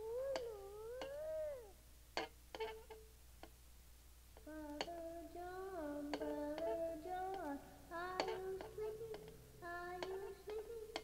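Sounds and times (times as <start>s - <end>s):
child singing wordless tune: 0.0s - 1.8s, 4.4s - 11.0s.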